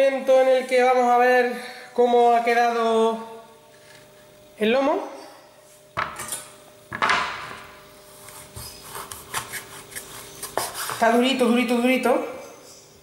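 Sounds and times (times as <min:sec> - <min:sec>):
knocks on wooden cutting board: 0:06.9 - 0:07.6.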